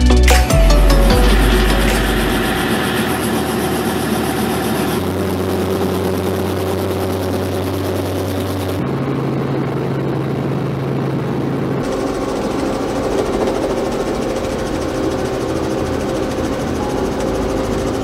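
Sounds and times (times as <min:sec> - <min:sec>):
helicopter engine running: 0:00.5 - 0:18.0.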